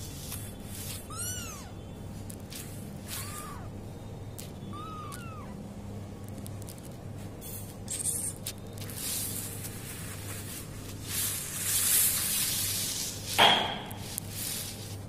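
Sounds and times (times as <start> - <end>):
kitten mew: 3.0 - 3.7, 4.7 - 5.6
rubbing on microphone: 14.0 - 15.0.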